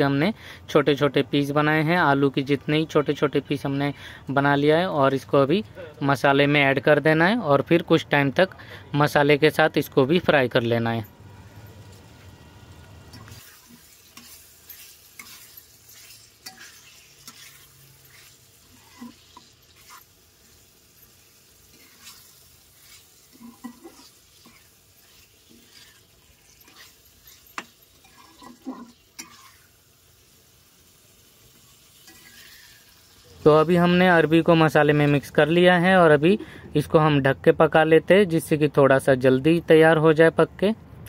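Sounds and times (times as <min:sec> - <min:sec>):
masala sizzling: 0:00.0 - 0:36.5
spatula scraping a pan: 0:13.2 - 0:29.8, 0:31.7 - 0:33.0.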